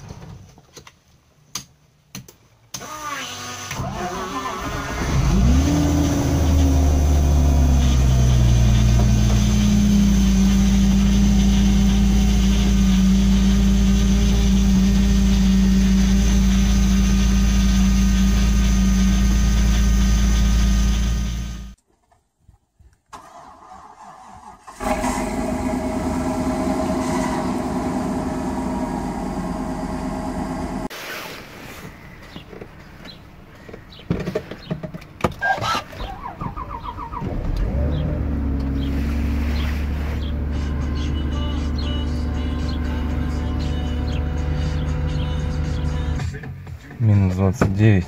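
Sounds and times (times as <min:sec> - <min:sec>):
large engine running: 0:04.9 - 0:21.8, 0:24.7 - 0:30.9.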